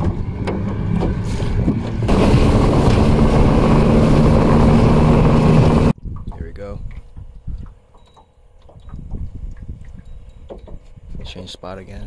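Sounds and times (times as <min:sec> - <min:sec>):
outboard motor running: 0:00.0 - 0:06.0
wind: 0:00.0 - 0:12.0.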